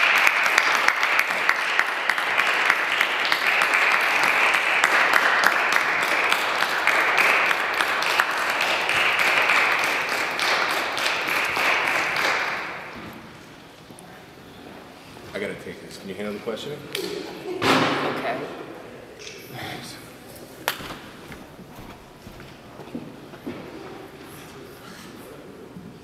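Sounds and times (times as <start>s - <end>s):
crowd applauding: 0.0s - 13.0s.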